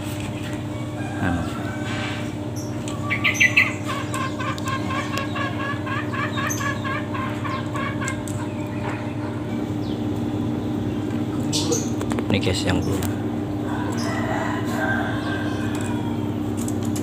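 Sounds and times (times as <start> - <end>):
junglefowl calling: 1.0 - 9.6.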